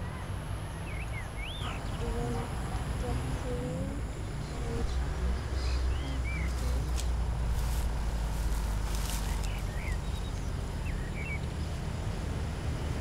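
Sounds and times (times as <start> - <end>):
bird chirps: 0.0 - 2.3, 9.2 - 11.8
steady low rumble: 0.0 - 13.0.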